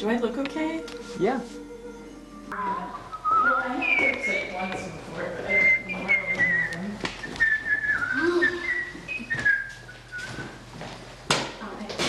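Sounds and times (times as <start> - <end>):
person whistling a tune: 3.0 - 4.6, 5.5 - 10.6.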